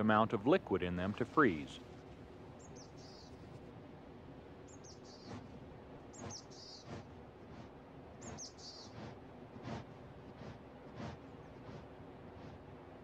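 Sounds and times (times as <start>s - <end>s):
songbird trilling: 2.6s - 3.3s, 4.7s - 5.4s.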